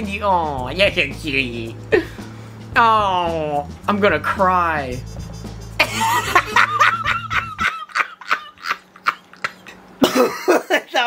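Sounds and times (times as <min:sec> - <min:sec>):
young man laughing: 0:05.8 - 0:11.0.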